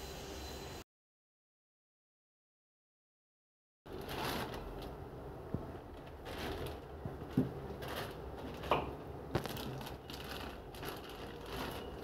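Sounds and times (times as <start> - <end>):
plastic wrapping crinkling: 3.9 - 5.0, 5.8 - 12.0.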